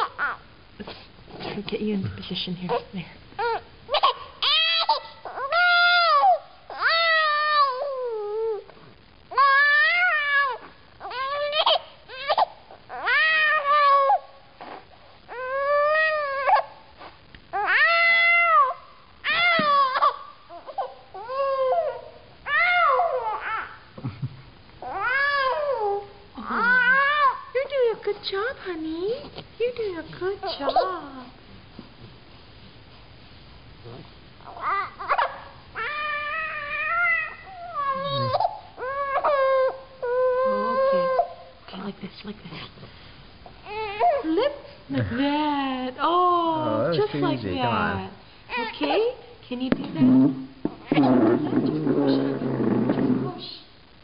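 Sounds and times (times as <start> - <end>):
baby crying: 0.0 - 0.4, 3.4 - 8.7, 9.3 - 16.7, 17.6 - 23.8, 24.8 - 27.5, 34.5 - 41.4, 43.6 - 44.5, 48.5 - 49.2.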